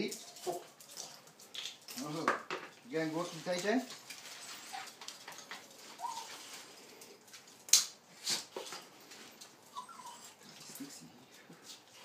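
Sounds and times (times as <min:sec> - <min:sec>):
dog leads clicking and clattering: 0:03.5 - 0:07.7
dog whining: 0:05.9 - 0:06.5, 0:09.7 - 0:11.0.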